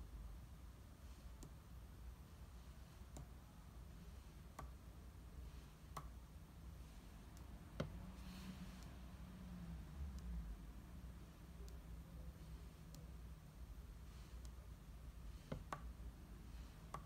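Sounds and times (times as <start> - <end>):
pencil tapping on paper: 15.4 - 15.9.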